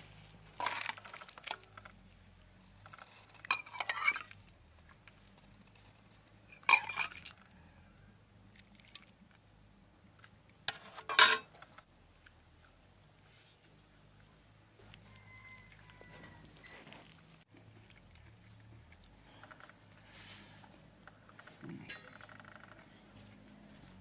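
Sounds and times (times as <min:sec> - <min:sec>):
metal ladle scraping metal pan: 0:00.5 - 0:01.2, 0:03.2 - 0:04.4, 0:06.5 - 0:07.2, 0:10.7 - 0:11.5.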